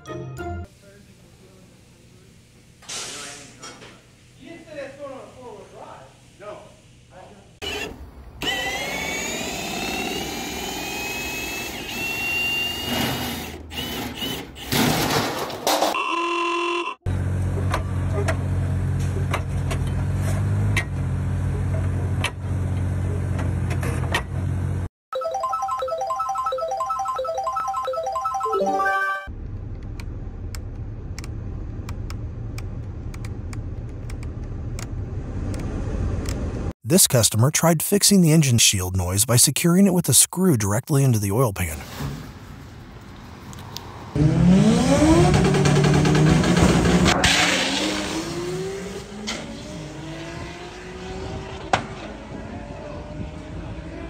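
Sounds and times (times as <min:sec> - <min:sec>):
cordless drill motor whine: 0:07.6 - 0:14.4.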